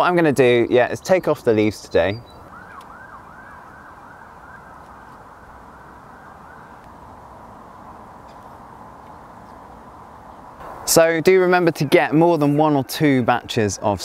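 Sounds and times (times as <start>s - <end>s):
outdoor background noise: 0.0s - 14.0s
faint yelping siren: 2.4s - 6.9s.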